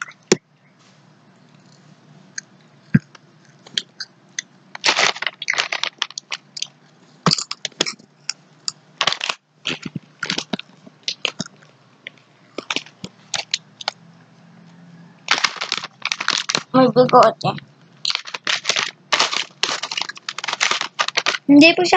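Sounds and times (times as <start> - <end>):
chips crunching: 2.9 - 6.7, 7.3 - 8.0, 8.7 - 11.7, 12.5 - 14.0, 15.3 - 17.2, 18.0 - 21.5
plastic bag crinkling: 4.7 - 6.7, 9.0 - 11.6, 12.5 - 14.0, 15.3 - 17.4, 18.0 - 21.9.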